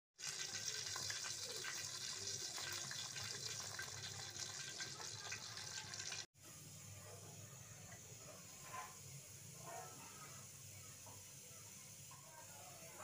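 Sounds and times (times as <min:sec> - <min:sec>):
broth boiling and bubbling: 0:00.2 - 0:06.3
steady hiss: 0:06.4 - 0:13.0.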